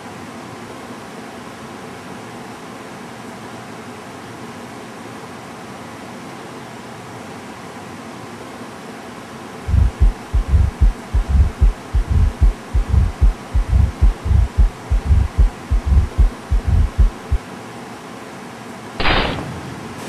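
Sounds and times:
dull low thumps: 9.7 - 17.4.

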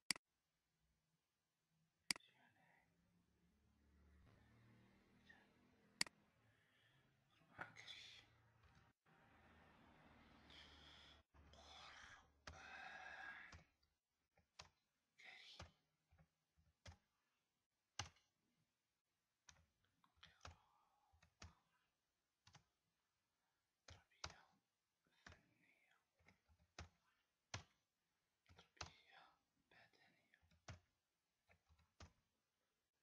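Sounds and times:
computer keyboard keystrokes: 18.0 - 18.2, 30.4 - 30.9.

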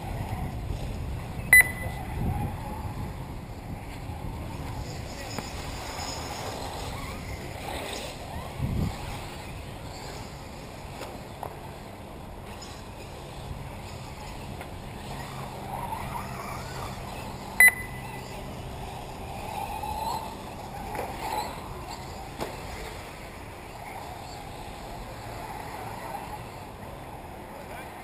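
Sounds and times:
model car motor whine: 0.0 - 28.0
loud electronic beep: 1.5 - 2.0, 17.6 - 18.0.

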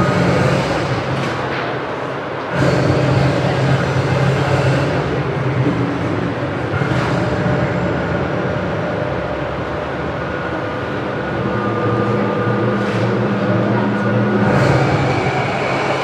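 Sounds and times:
held low tones: 0.0 - 16.0.

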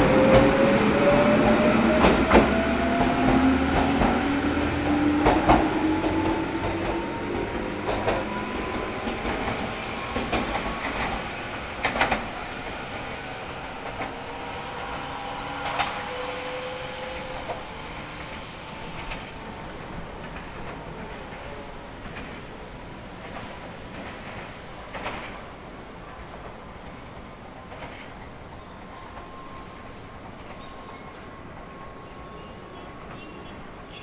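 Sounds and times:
wheels clacking over rail joints: 0.0 - 16.3, 17.1 - 34.0
electric train motors whining: 12.9 - 19.7.

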